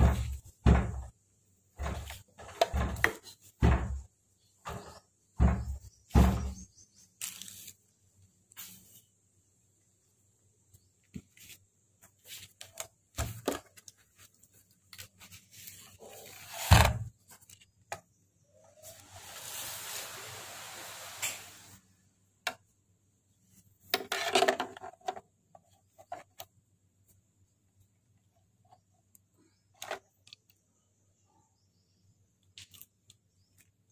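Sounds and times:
loud thump: 0:05.4 - 0:06.6
wires and plastic plugs clicking: 0:29.1 - 0:30.6.

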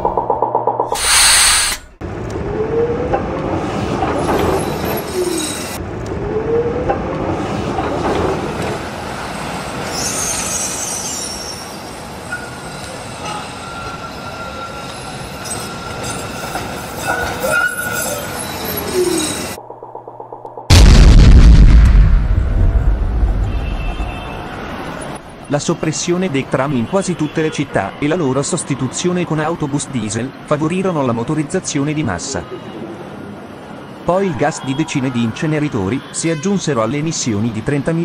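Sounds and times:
tram rumbling on rails: 0:02.0 - 0:19.9
tram wheels squealing: 0:04.0 - 0:05.8, 0:07.8 - 0:19.6.

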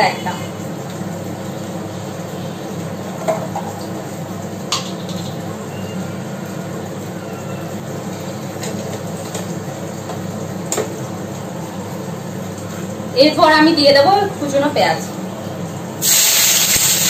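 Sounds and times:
spices frying in oil: 0:00.0 - 0:17.0.

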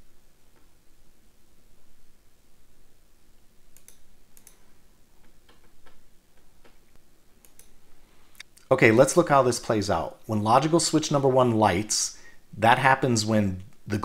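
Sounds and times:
faint room hiss: 0:00.0 - 0:14.0
computer mouse clicking: 0:03.7 - 0:08.7.

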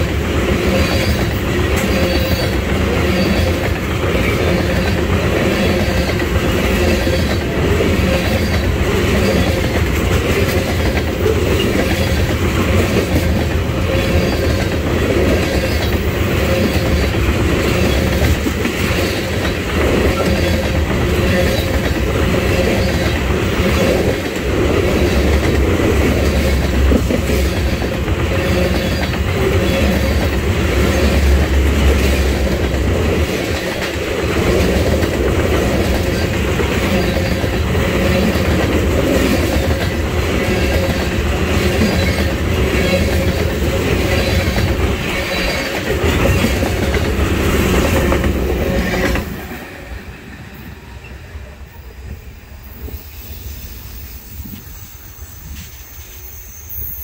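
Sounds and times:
rhythmic rail clatter: 0:00.0 - 0:57.0
train wheels rumbling on rail: 0:00.0 - 0:57.0.

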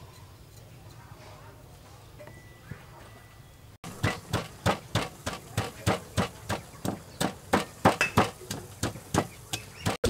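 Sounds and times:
stone pestle pounding in mortar: 0:03.9 - 0:10.0.

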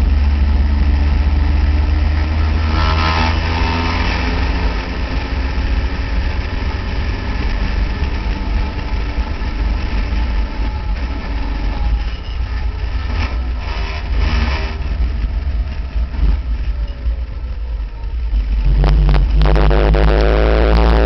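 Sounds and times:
racing car engine: 0:00.0 - 0:21.0
wind noise on microphone: 0:18.1 - 0:21.0.

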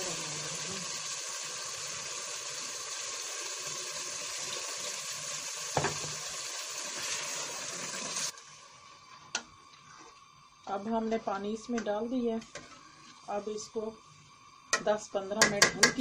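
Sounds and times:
water splashing and sizzling in oil: 0:00.0 - 0:11.7.

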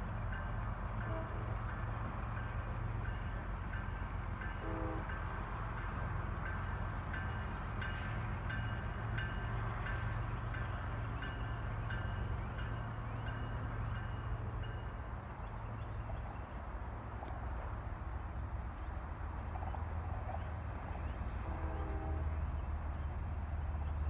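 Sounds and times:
diesel locomotive drone: 0:00.0 - 0:24.0
locomotive bell ringing: 0:02.4 - 0:15.1.

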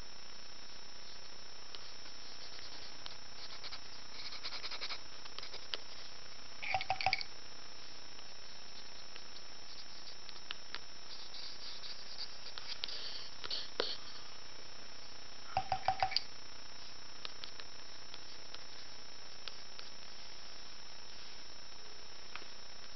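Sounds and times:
steady hiss: 0:00.0 - 0:22.9
pen scratching on paper: 0:01.2 - 0:06.0, 0:08.5 - 0:14.2.

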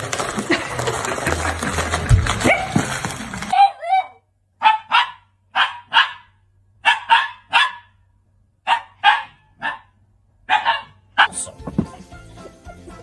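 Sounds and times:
dog barking: 0:03.5 - 0:08.0, 0:08.6 - 0:11.5.

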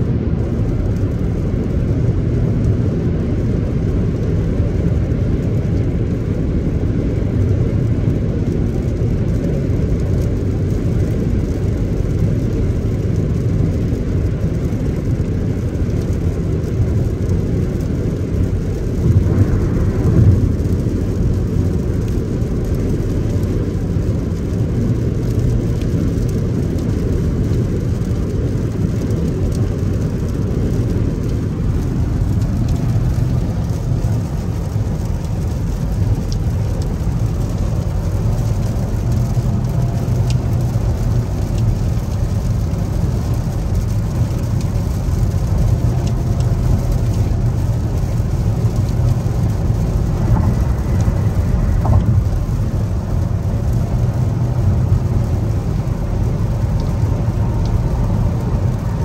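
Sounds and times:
car road rumble: 0:00.0 - 0:59.0.

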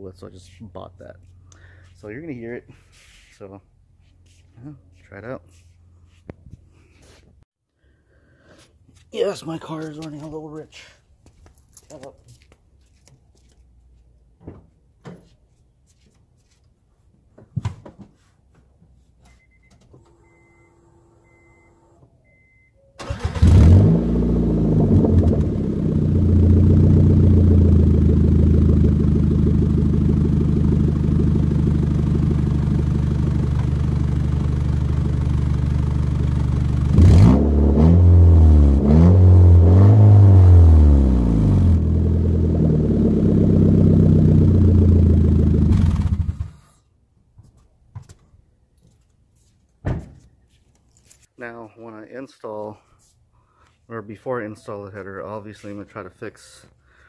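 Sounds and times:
engine revving: 0:23.0 - 0:31.8, 0:36.9 - 0:46.7
car engine starting: 0:23.0 - 0:46.7
car engine idling: 0:24.1 - 0:37.0, 0:41.2 - 0:46.5.

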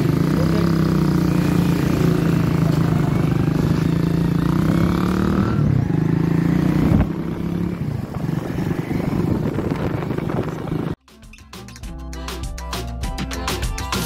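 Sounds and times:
motorcycle engine humming: 0:00.0 - 0:11.0
road and wind noise: 0:00.0 - 0:11.0.

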